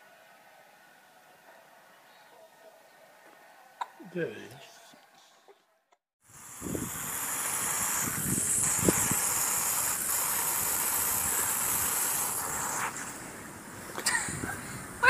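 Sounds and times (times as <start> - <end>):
hose nozzle spray hissing: 6.3 - 14.2.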